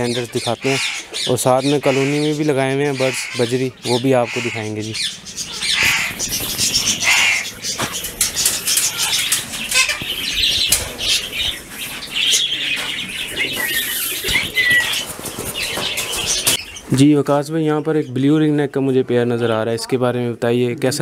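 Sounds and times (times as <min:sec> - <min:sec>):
parakeets chattering and chirping: 0:00.0 - 0:17.0
wings flapping in cages: 0:05.4 - 0:16.6.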